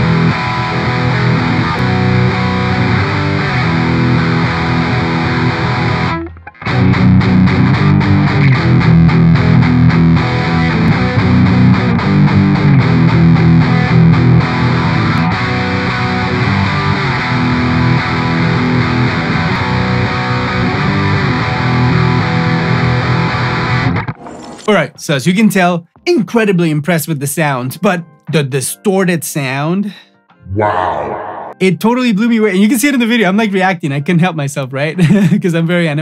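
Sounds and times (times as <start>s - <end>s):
distorted electric guitar: 0.0s - 24.3s.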